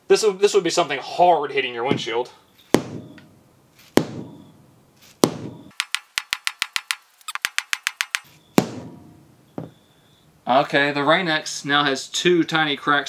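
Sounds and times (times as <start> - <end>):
rubber mallet knocking on glass: 2.8 - 3.2, 4.0 - 4.6, 5.2 - 5.7, 8.6 - 9.8.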